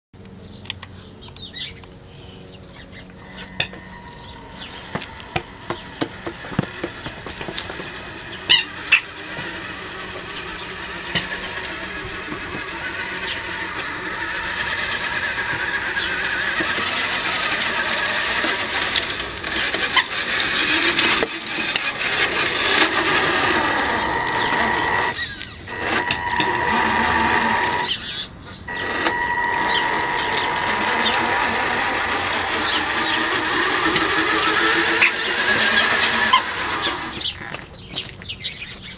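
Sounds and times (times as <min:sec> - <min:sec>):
toy truck electric motor whine: 0:03.2 - 0:38.1.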